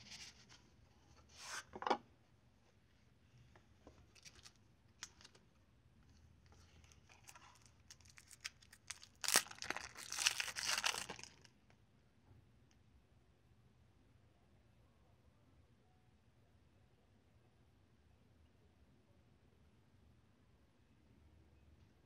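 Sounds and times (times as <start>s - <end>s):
plastic wrap crinkling and tearing: 4.1s - 5.4s, 6.8s - 11.5s.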